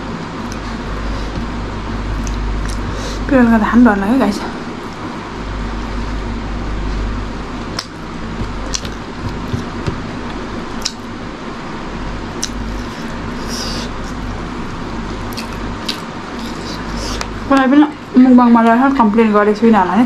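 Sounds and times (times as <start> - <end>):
background hiss and hum: 0.0 - 20.0
wet chewing mouth clicks: 8.6 - 9.0, 10.8 - 11.1, 12.4 - 14.2, 15.3 - 17.3.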